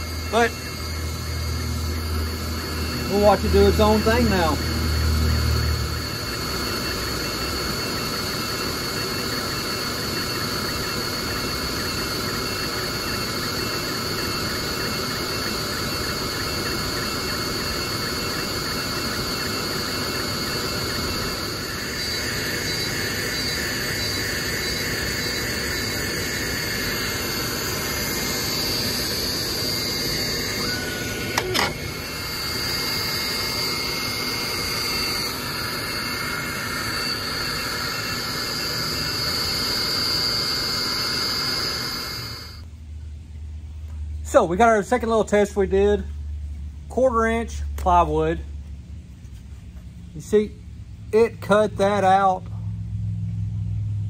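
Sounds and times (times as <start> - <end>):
laser engraver whirring: 0.0 - 42.7
high whine: 0.0 - 54.0.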